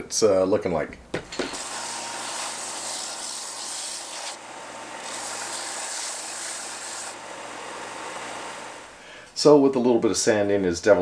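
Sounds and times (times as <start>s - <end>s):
belt sander sanding wood: 1.5s - 9.0s.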